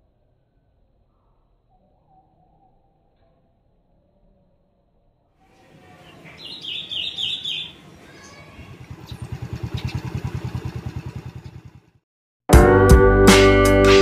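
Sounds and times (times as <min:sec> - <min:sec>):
bird chirping: 0:05.6 - 0:11.6
small motorcycle engine passing: 0:05.9 - 0:12.0
guitar music: 0:12.6 - 0:14.0.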